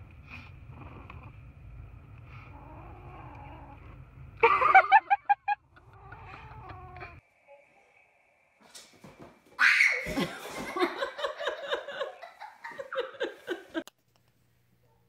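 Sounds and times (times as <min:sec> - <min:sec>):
child squealing and giggling: 0:09.6 - 0:10.3.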